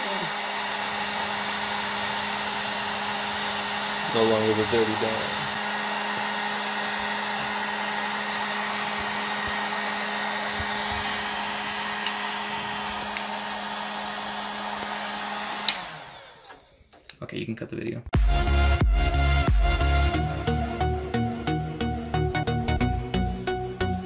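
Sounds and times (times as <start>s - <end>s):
heat gun blowing air: 0.0s - 17.1s.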